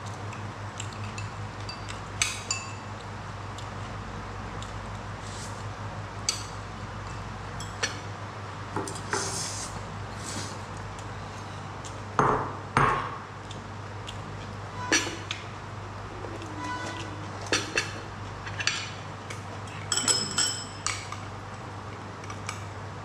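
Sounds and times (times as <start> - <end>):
utensils clinking on ceramic plate: 16.4 - 19.0, 19.7 - 21.2.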